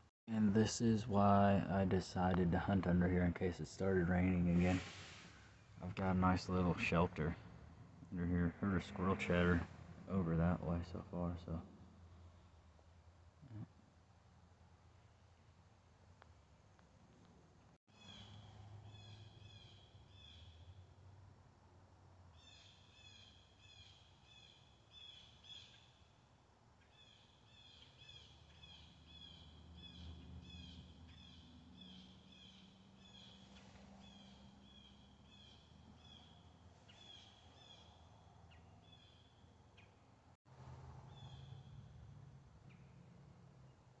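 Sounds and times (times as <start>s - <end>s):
faint low hum: 0.0s - 22.4s
small bird chirping: 17.9s - 20.8s, 26.8s - 40.0s.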